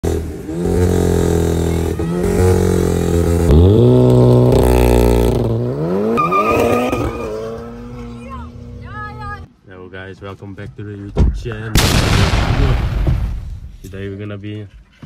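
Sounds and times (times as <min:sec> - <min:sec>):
car engine revving: 0:00.0 - 0:09.5.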